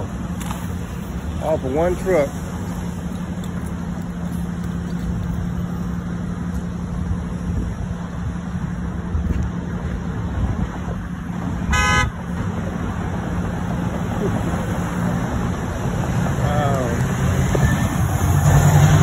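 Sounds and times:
traffic rumble: 0.0s - 19.0s
vehicle horn honk: 11.7s - 12.2s.

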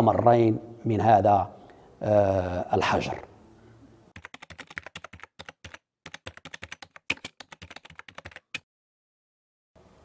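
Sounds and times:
computer keyboard typing: 4.2s - 8.6s.

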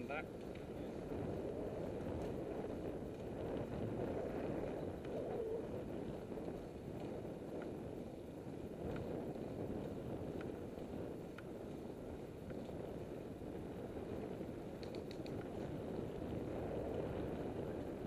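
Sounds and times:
bicycle tyres rolling on tarmac: 0.0s - 18.0s
wind rush over microphone: 0.0s - 18.0s
faint ticks: 0.4s - 0.8s, 8.8s - 11.8s, 14.7s - 16.1s.

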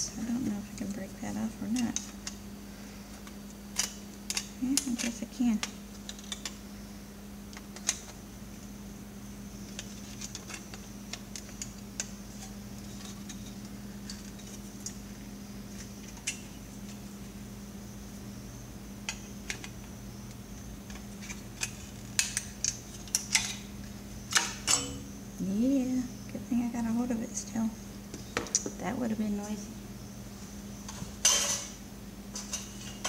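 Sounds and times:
small plastic parts clicking: 3.1s - 6.6s.

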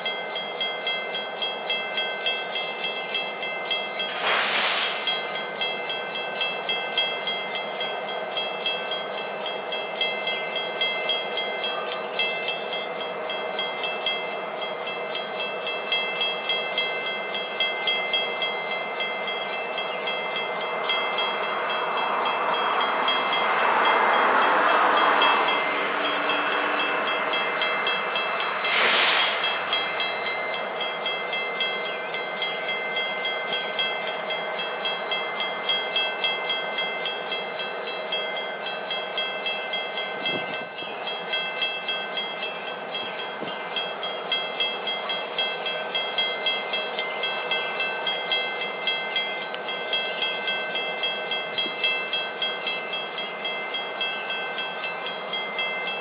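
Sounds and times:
crossing bell ringing: 0.0s - 56.0s
rush of noise: 4.0s - 5.3s, 23.8s - 31.4s
short sharp burst: 28.5s - 30.6s.

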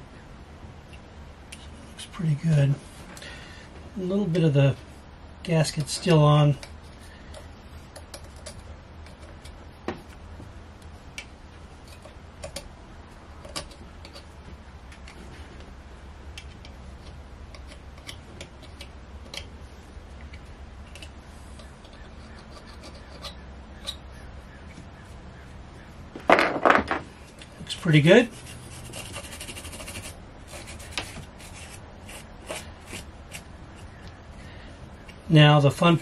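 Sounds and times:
faint steady low hum: 0.0s - 36.0s
hand tools clicking and tapping: 16.3s - 19.5s, 20.2s - 24.0s.

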